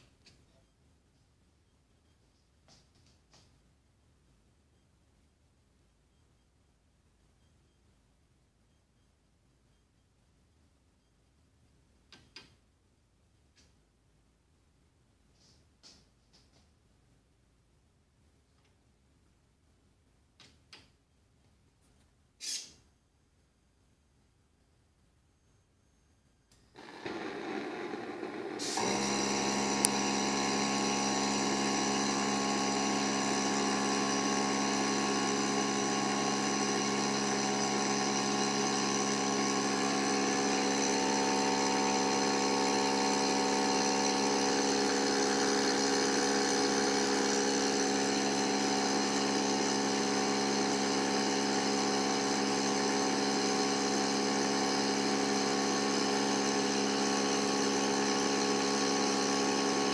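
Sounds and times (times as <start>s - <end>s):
machine hum: 26.8s - 59.9s.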